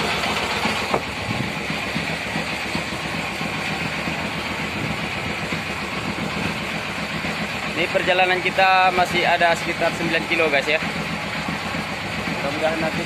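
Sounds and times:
engine running steadily: 0.0s - 13.0s.

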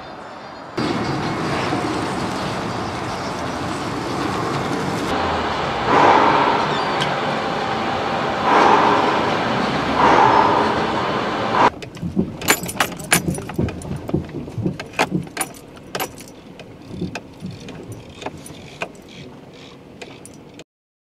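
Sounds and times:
rushing street noise: 0.0s - 20.6s
metal tools clinking: 12.4s - 14.0s.

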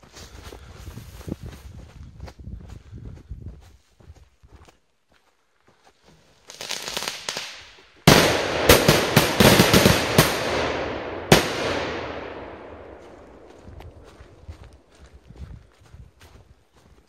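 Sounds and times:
sharp firecracker cracks: 6.6s - 12.8s
firecracker bangs: 8.1s - 13.2s.

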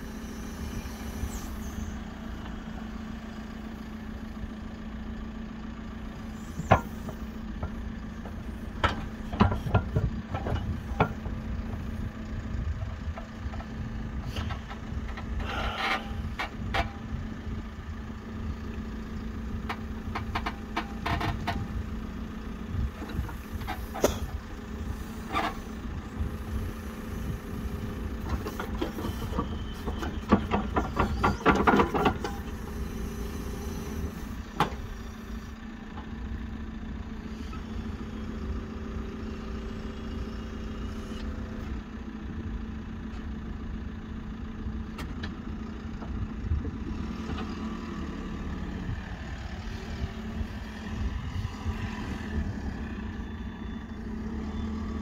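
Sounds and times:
diesel engine running: 0.0s - 55.0s
metal clanks and knocks: 28.3s - 32.5s.

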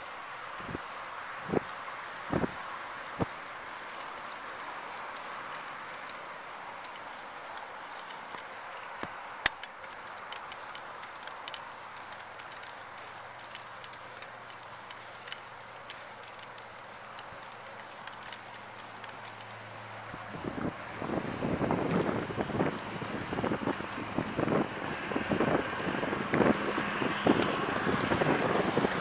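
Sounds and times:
bicycle tyres rolling on asphalt: 0.0s - 29.0s
wind on microphone: 2.3s - 2.6s, 20.2s - 29.0s
bike clicks and knocks: 2.4s - 29.0s.

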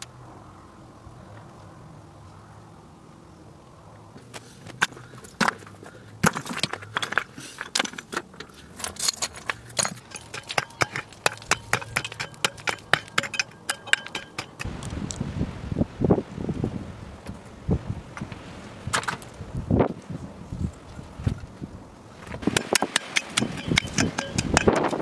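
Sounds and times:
stones clacking together: 4.8s - 14.9s, 22.4s - 25.0s.

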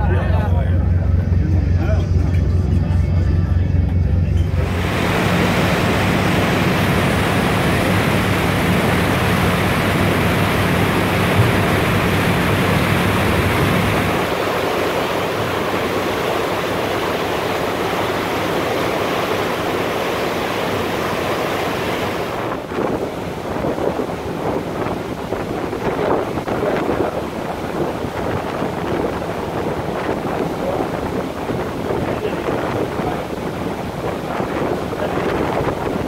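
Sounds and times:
loud rushing noise: 0.0s - 17.0s
low hum: 0.0s - 22.9s.

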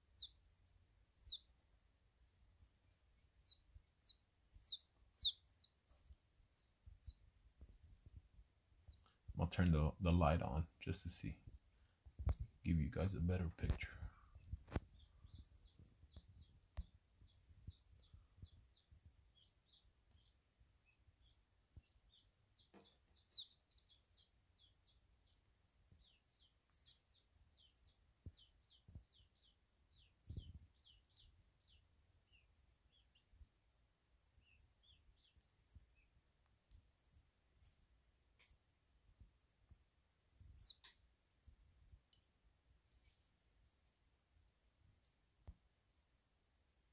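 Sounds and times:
quail chicks peeping: 0.0s - 46.3s.

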